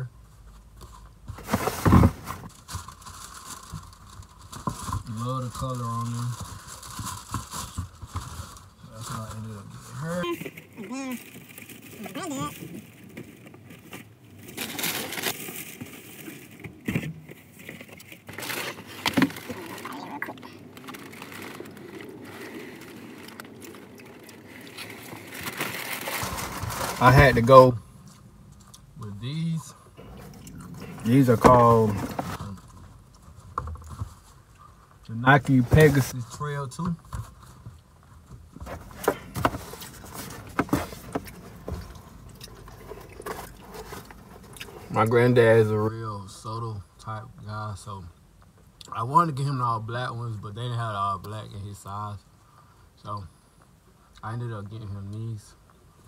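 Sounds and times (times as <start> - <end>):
paper rustling and crinkling: 0.8 - 27.8, 30.0 - 34.5, 35.3 - 36.2, 38.6 - 45.8
cardboard box bump: 1.3 - 2.5, 38.6 - 42.0.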